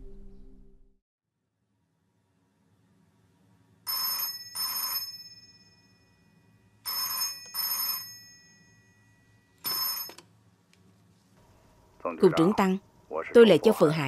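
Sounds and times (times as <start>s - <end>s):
telephone bell ringing: 3.9s - 10.3s.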